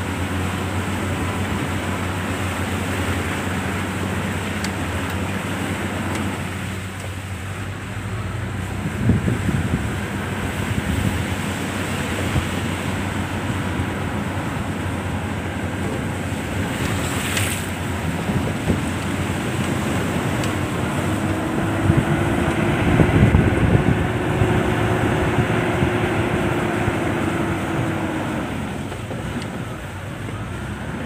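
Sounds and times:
vehicle engine running: 0.0s - 31.0s
wind rushing over microphone: 7.5s - 31.0s.

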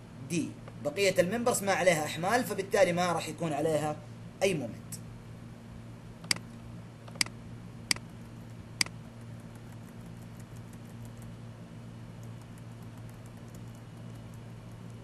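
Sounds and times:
low electrical hum: 0.0s - 15.0s
computer mouse clicks: 7.1s - 7.3s, 8.8s - 11.3s, 12.2s - 15.0s.

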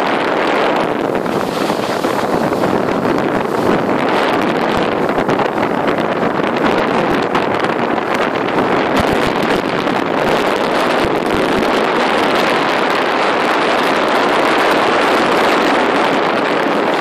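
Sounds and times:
skis sliding over snow: 0.0s - 5.0s
low bumps: 0.0s - 17.0s
wind buffeting microphone: 0.0s - 17.0s.

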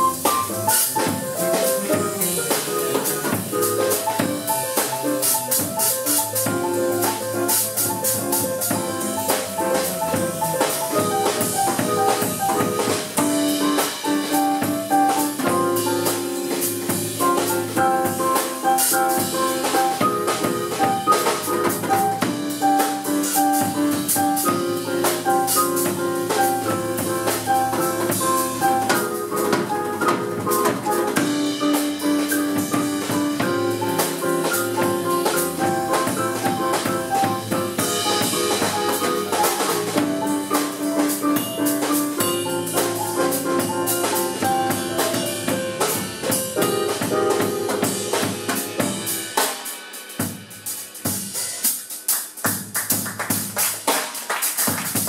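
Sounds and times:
electric bass guitar: 0.0s - 14.0s
digital piano: 0.0s - 49.9s
drum kit: 0.0s - 55.0s.

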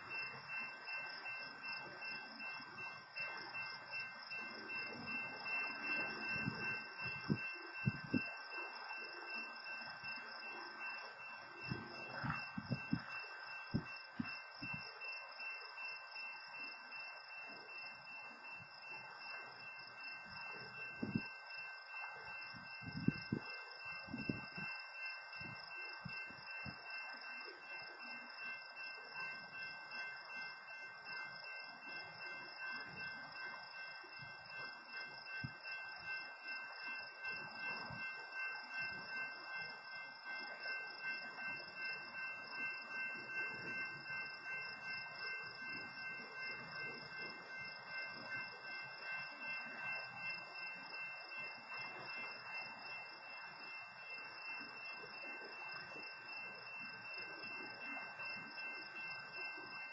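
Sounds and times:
railroad crossing bell ringing: 0.0s - 59.9s.

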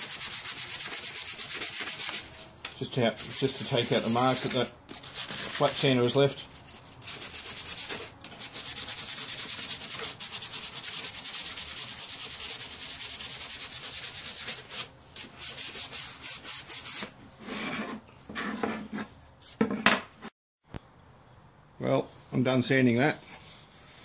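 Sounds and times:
sandpaper rubbing on wood: 0.0s - 2.5s, 3.1s - 17.7s.

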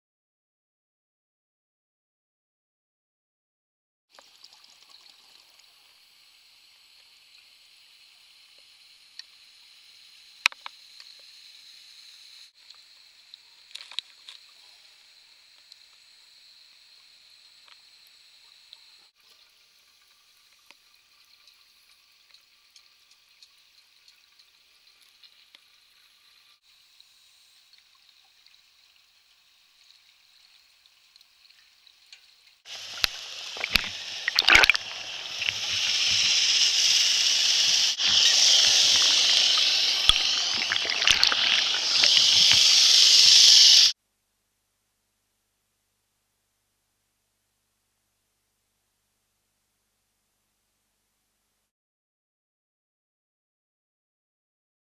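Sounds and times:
underwater hiss: 5.4s - 22.9s, 32.6s - 44.0s
water sloshing and splashing: 32.7s - 36.2s, 40.0s - 42.4s.

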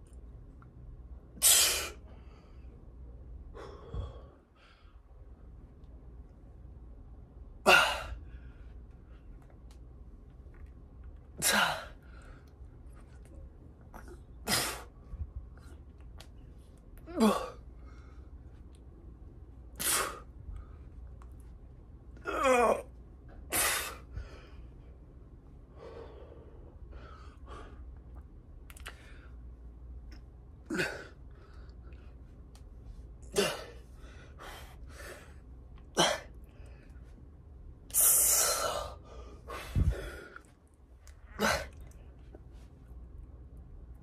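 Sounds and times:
man exhaling and grunting: 17.1s - 17.6s, 22.2s - 22.9s, 30.7s - 31.2s, 33.3s - 33.8s, 41.3s - 41.8s
man groaning: 17.1s - 17.6s, 22.2s - 22.9s.

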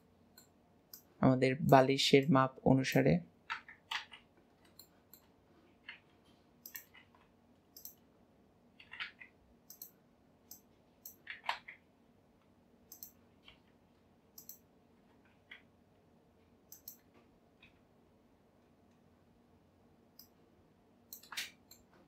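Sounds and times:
mouse and keyboard clicks: 3.5s - 7.2s, 7.8s - 8.0s, 8.8s - 11.8s, 12.9s - 13.6s, 14.4s - 14.6s, 16.7s - 17.8s, 21.1s - 22.0s.

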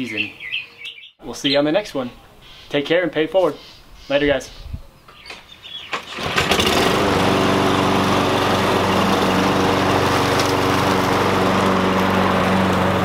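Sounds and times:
lawn mower engine running: 5.9s - 13.0s.

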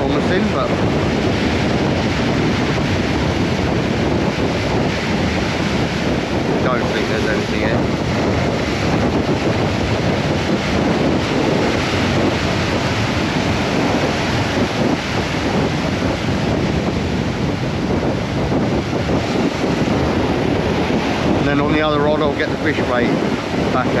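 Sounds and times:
surf washing up beach: 0.0s - 24.0s
wind buffeting microphone: 0.0s - 24.0s.

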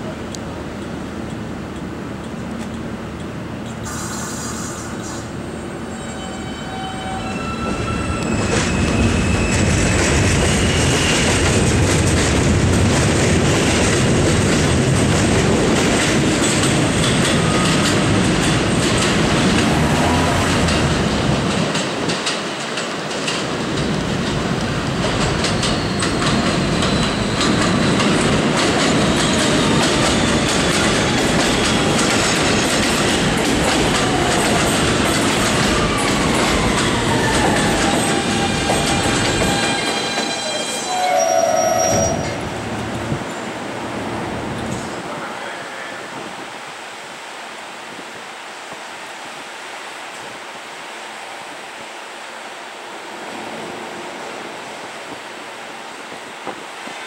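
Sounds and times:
train wheels clattering over rails: 7.7s - 40.9s.

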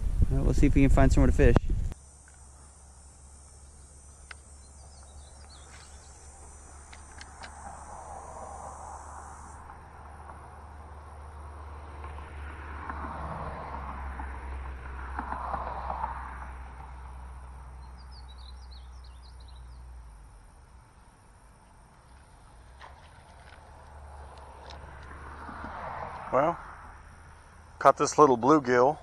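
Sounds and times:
traffic hum from bridge: 0.0s - 29.0s
bird chirps: 3.4s - 7.2s, 17.8s - 19.9s.

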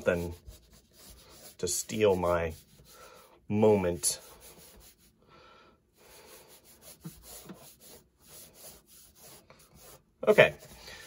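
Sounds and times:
pencil scratching on paper: 0.0s - 5.1s, 6.1s - 10.8s.

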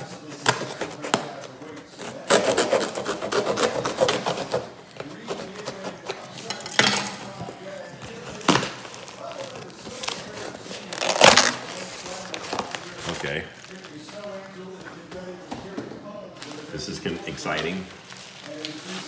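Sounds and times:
packaging rubbing and scraping: 0.0s - 6.5s, 7.1s - 14.1s, 17.7s - 19.0s
packaging rustle: 8.1s - 14.4s, 17.8s - 19.0s.

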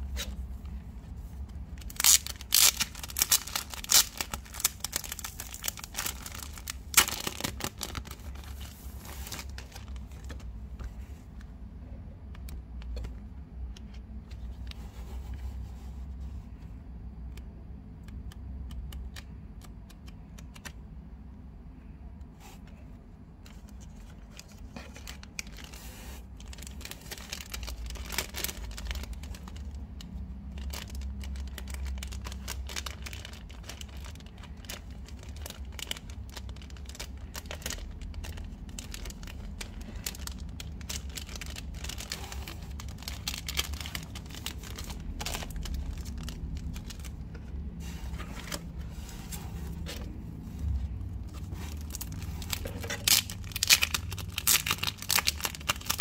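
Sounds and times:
plastic wrap crinkling: 0.0s - 10.5s, 23.4s - 56.0s
steady low hum: 0.0s - 55.8s
paper rustling: 1.3s - 11.1s, 38.8s - 56.0s.

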